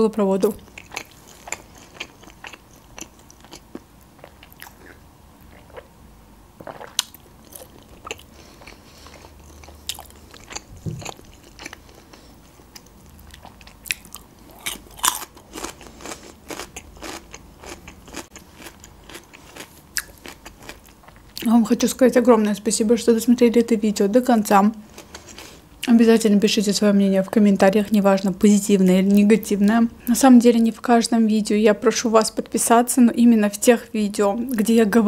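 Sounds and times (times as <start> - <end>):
chewing and biting food: 0.6 - 5.9, 6.6 - 21.4.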